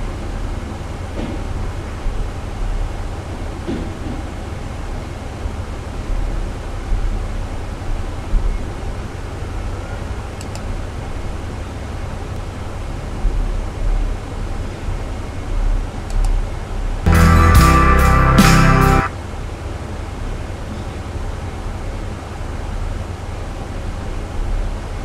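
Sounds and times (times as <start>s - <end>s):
faint clicks: 10.4s - 10.7s.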